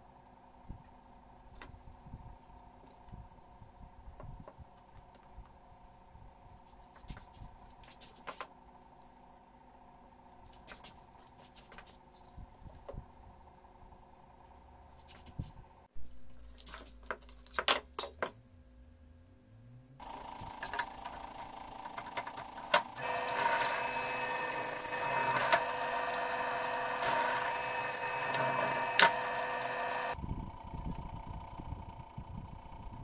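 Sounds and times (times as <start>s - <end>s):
drill press whining: 22.5s - 30.2s.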